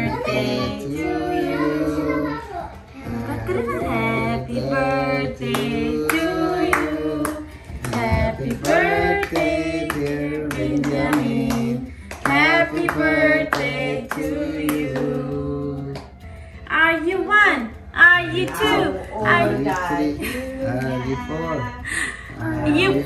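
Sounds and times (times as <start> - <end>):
voices singing together: 0.0 - 16.6, 17.9 - 23.0
hand clapping: 5.5 - 16.4.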